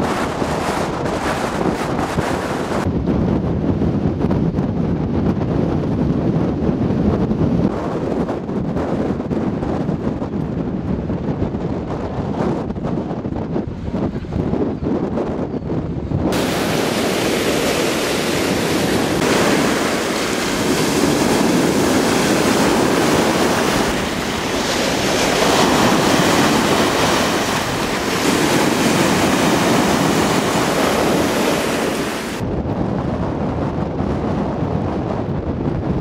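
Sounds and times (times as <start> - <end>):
wind noise on microphone: 0.0 - 36.0
sea surf breaking: 16.3 - 32.4.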